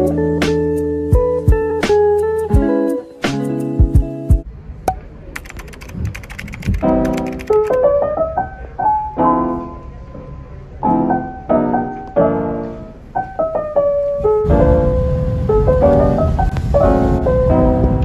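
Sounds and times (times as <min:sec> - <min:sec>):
piano playing chords: 0:00.0 - 0:04.5, 0:05.4 - 0:18.0
quick run of clicks: 0:05.4 - 0:07.8.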